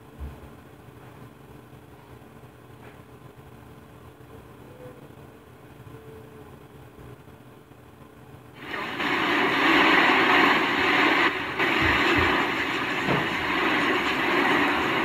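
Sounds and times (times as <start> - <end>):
storm wind and rain rushing: 8.6 - 15.0.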